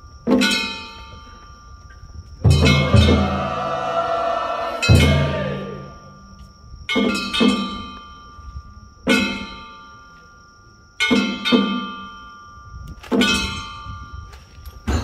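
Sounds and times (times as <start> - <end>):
drum strokes: 2.5 - 5.9
gong strokes ringing: 2.5 - 6.2.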